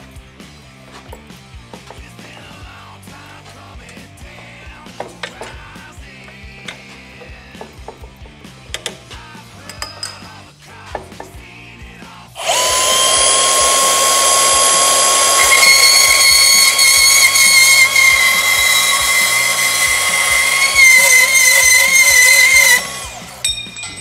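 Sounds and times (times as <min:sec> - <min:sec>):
bandsaw whining through metal: 0:12.4 - 0:24.0
high ringing tone: 0:21.0 - 0:24.0.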